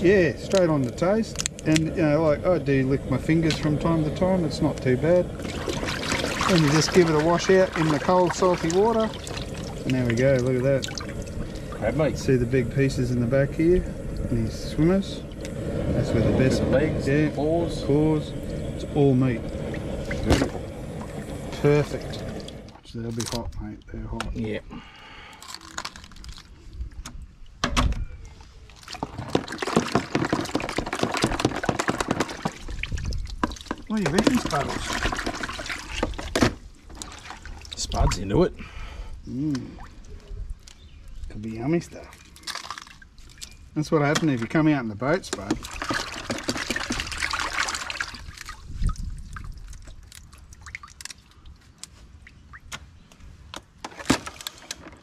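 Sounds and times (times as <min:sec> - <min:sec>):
water splashing in a tub: 0:03.5 - 0:12.3, 0:19.6 - 0:22.8, 0:28.6 - 0:38.3, 0:41.9 - 0:51.6
water dripping: 0:04.6 - 0:12.0, 0:39.4 - 0:44.5, 0:45.2 - 0:52.9
crab shells crackling: 0:25.2 - 0:26.6, 0:28.8 - 0:37.2, 0:42.2 - 0:43.6, 0:49.2 - 0:51.9.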